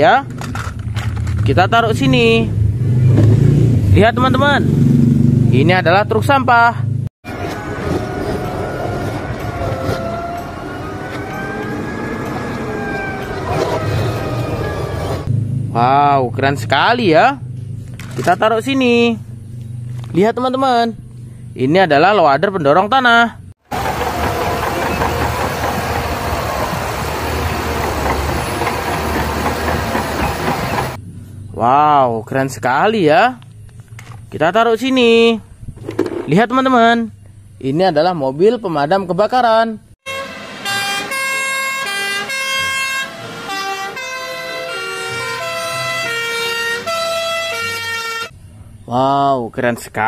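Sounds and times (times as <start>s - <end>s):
bulldozer diesel engine rumbling: 7.3s - 15.3s, 23.7s - 31.0s
two-tone fire engine sirens: 7.3s - 15.3s, 40.1s - 48.3s.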